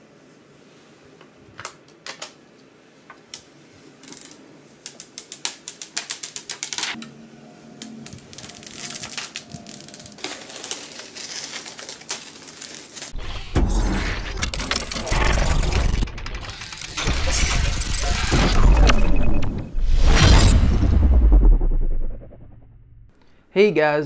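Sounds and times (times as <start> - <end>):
plastic film peeling crackle: 4.0 - 7.0, 7.8 - 13.2.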